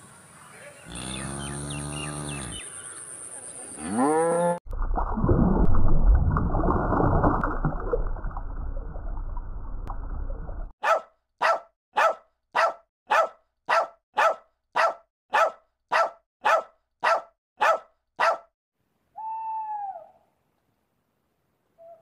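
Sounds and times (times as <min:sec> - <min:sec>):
puppy barking: 0:10.8 - 0:18.5
owl call: 0:19.1 - 0:20.4.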